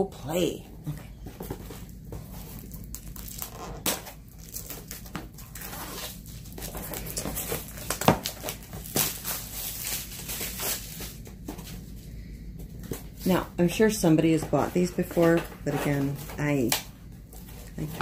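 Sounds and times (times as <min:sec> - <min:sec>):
plastic wrapping crinkling and tearing: 0:01.6 - 0:11.9.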